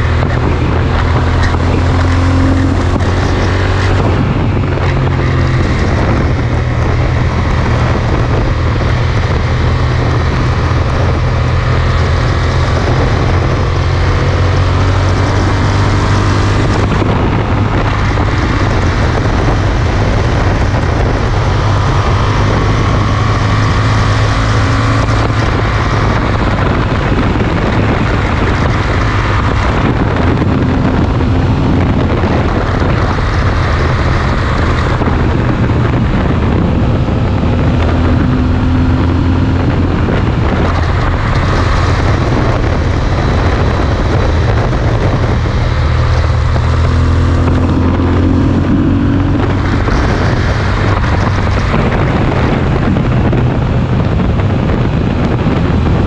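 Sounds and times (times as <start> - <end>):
motorcycle engine cruising drone: 0.0 - 56.0
wind rush over microphone: 0.0 - 56.0.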